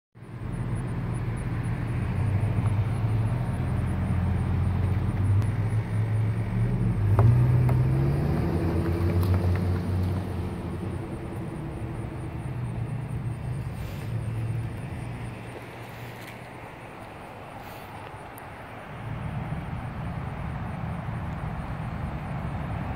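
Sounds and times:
vehicle engine humming: 0.2s - 22.9s.

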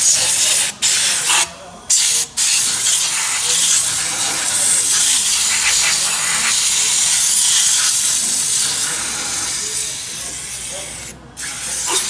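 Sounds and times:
spray gun hissing: 1.9s - 10.8s.

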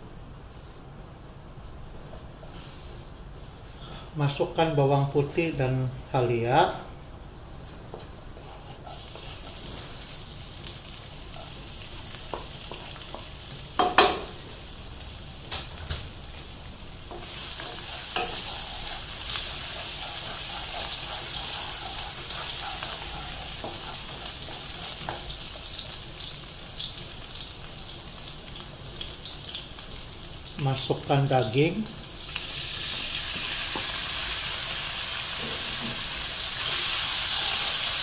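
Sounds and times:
garlic sizzling in hot oil: 8.8s - 38.0s.

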